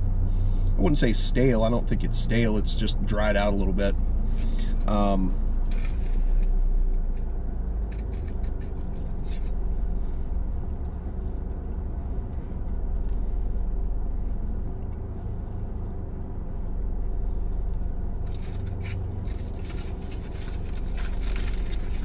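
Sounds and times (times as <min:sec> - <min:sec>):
car engine idling: 0:00.0 - 0:22.0
foil wrapper crinkling: 0:18.3 - 0:22.0.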